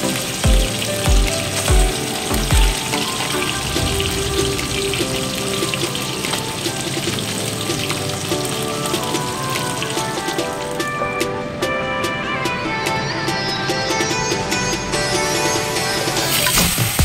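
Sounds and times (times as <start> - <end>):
fish frying in hot oil: 0.0 - 10.7.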